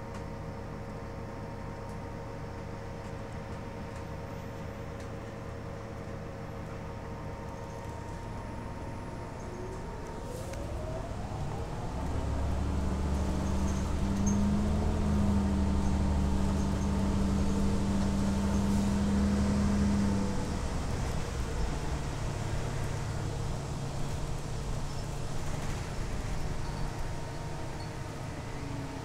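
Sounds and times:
deep engine drone: 0.0 - 29.0
road and tyre noise: 6.1 - 29.0
rising whine: 7.4 - 21.7.

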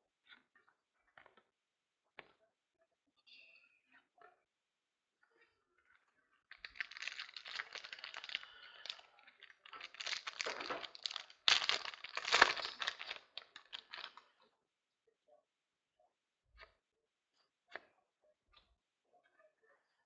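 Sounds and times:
plastic wrapping tearing and crinkling: 6.5 - 14.2.

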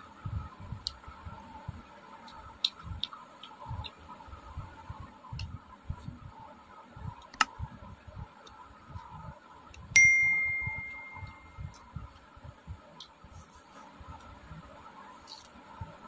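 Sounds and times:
bright metallic ding: 10.0 - 11.6.

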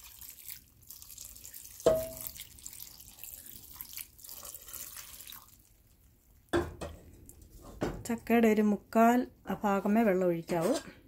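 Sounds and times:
water pouring into a pot: 0.0 - 6.8.

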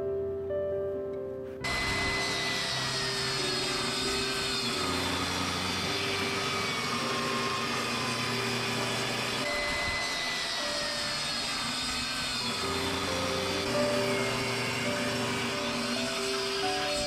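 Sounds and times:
table saw ripping wood: 1.6 - 17.0.

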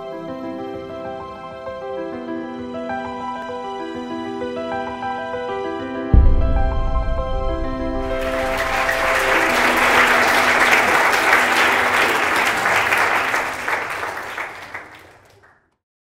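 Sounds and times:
soft music: 0.0 - 14.4
audience applauding: 8.0 - 15.7.

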